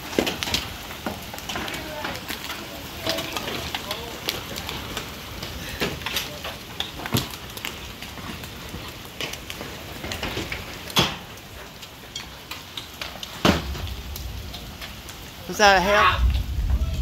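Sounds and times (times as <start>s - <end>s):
hailstones pattering: 0.0s - 17.0s.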